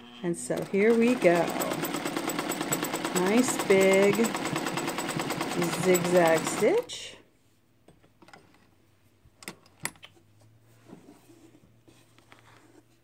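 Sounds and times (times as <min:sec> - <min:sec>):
sewing machine parts clicking: 0:00.6 - 0:06.8.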